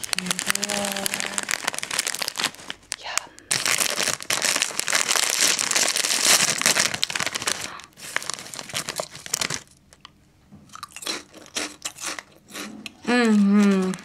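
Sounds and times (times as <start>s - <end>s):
hand rustling in packet: 0.0s - 9.8s
crisp packet crinkling and tearing: 0.0s - 10.1s, 10.8s - 14.0s.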